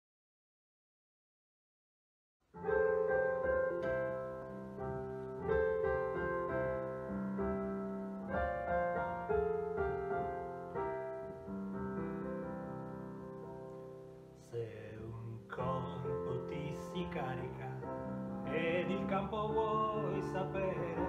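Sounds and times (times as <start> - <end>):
slow piano chords: 2.5 - 21.0.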